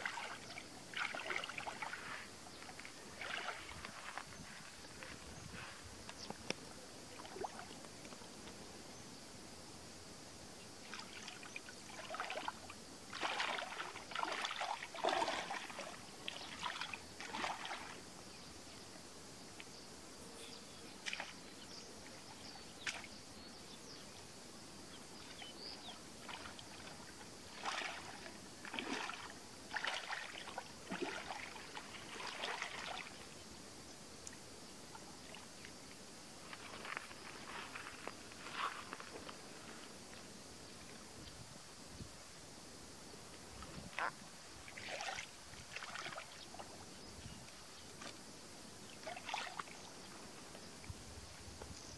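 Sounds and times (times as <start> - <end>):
hands splashing in muddy water: 13.1 - 18.0, 27.5 - 33.1.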